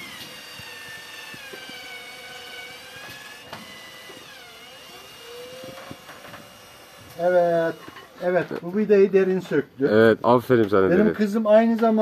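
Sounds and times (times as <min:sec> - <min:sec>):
cordless drill motor whirring: 0:00.0 - 0:08.4.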